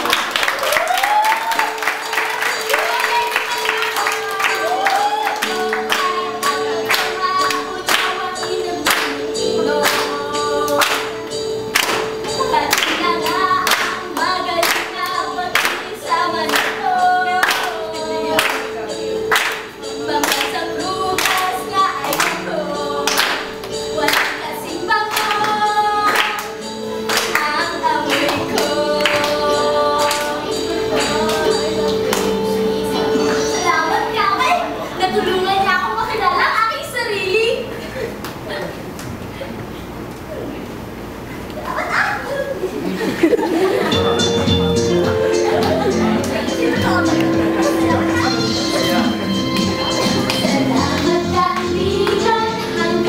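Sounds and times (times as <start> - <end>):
song with singing: 0.0 - 35.6, 42.9 - 53.0.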